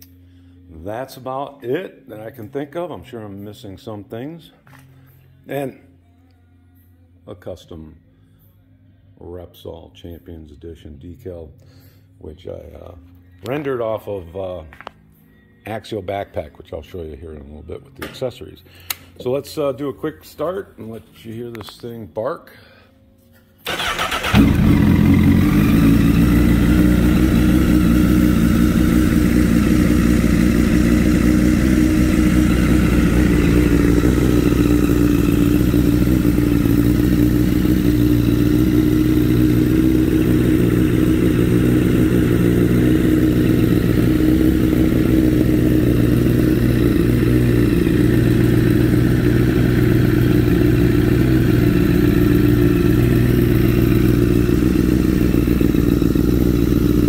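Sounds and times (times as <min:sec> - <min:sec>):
motorcycle engine idling: 0:23.7 - 0:57.0.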